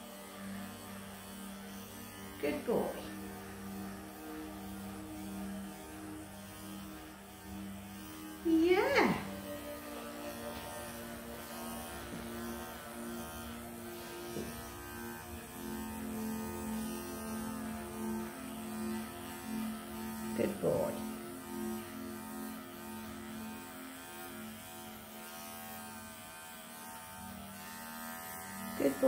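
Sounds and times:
electric clippers humming: 0.0s - 29.0s.

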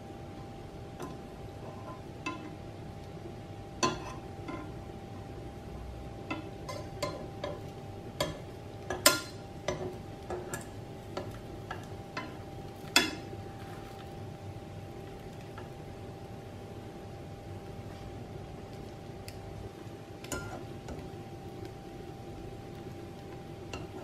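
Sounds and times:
faint steady hum: 0.0s - 24.0s
utensils clinking on frying pan: 1.0s - 2.6s, 3.8s - 4.8s, 6.2s - 13.3s, 20.2s - 21.0s, 23.7s - 24.0s.

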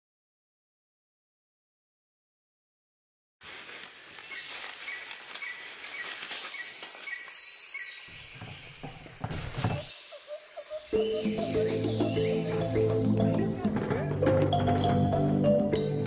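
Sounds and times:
steady hiss: 3.4s - 7.1s, 8.0s - 13.6s
insects chirping: 3.5s - 15.3s
birds chirping: 4.1s - 15.8s
wheelbarrow wheel crunching over grass: 8.2s - 9.9s.

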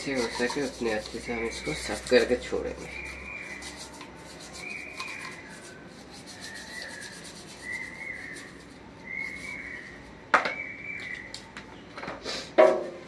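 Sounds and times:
brush scraping: 0.0s - 10.0s.

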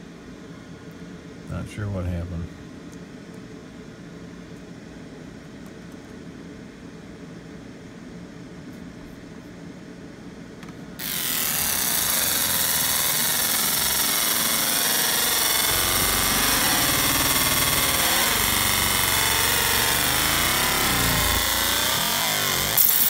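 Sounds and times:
laser engraver buzzing hiss: 11.0s - 23.0s
whining tones bending: 11.0s - 23.0s.

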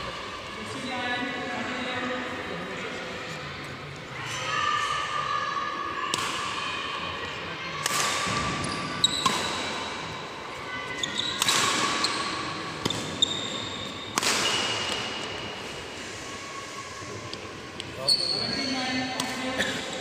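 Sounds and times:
shoes squeaking on court: 8.6s - 9.6s, 10.9s - 15.3s, 18.0s - 19.0s
racket striking shuttlecock: 9.2s - 9.8s, 11.4s - 12.1s, 14.1s - 15.2s.

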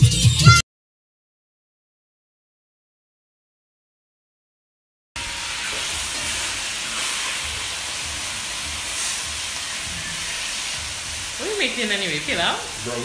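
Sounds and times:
chicken sizzling in hot oil: 5.2s - 13.0s.

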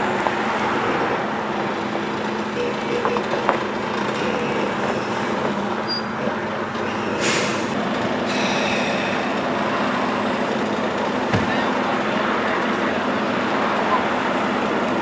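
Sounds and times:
diesel truck engine idling: 0.0s - 15.0s
air brake hiss: 7.2s - 9.2s.

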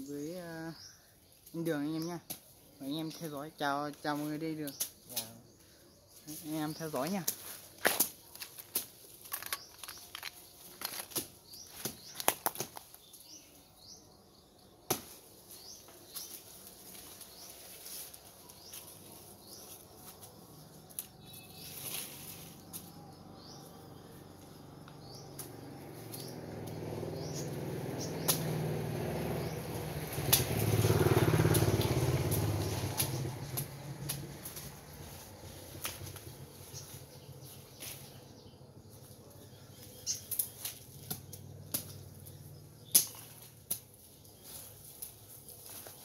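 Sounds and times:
dry leaves and twigs crackling: 0.0s - 14.0s, 14.8s - 46.0s
low motor rumble: 18.2s - 45.4s
faint bird chirps: 20.6s - 25.5s.

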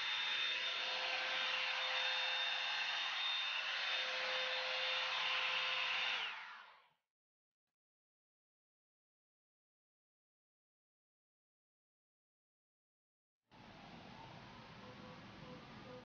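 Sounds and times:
hot-air brush dryer blowing: 0.0s - 7.0s.

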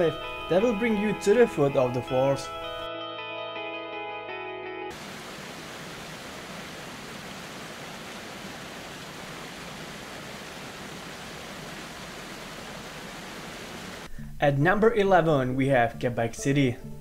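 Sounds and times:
large waterfall rushing: 4.9s - 14.1s.

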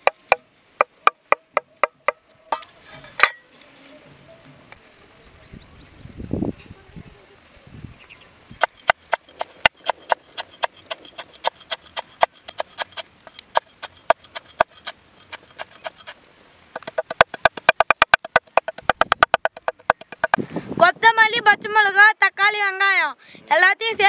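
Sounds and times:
knife chopping vegetables: 8.6s - 16.2s.

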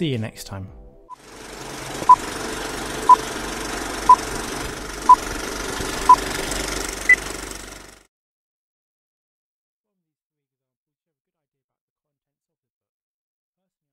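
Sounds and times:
steady rough noise: 1.2s - 8.0s
short electronic beeps: 6.0s - 6.2s.

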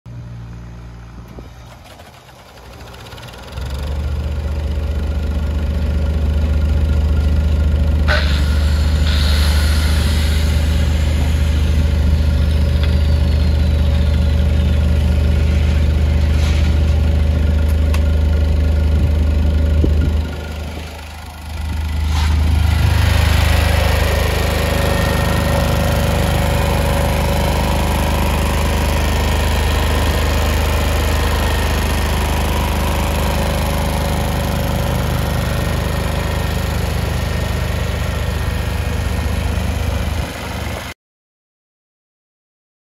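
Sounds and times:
diesel generator running: 0.1s - 41.0s
high hiss: 8.1s - 13.7s.

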